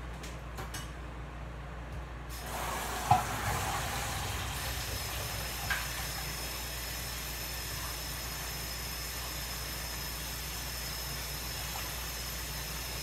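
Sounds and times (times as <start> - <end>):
water running into sink: 2.3 - 8.4.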